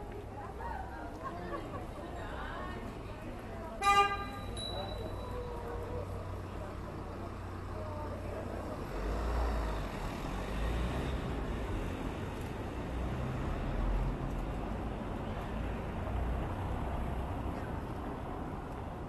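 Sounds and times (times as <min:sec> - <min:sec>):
street noise: 0:00.0 - 0:19.0
vehicle rumbling by: 0:04.7 - 0:19.0.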